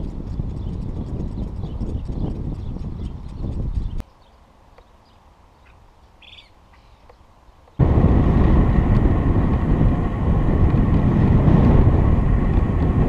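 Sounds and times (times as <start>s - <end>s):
wind rush on microphone: 0.0s - 4.0s, 7.8s - 13.0s
faint bird chirps: 3.0s - 7.2s.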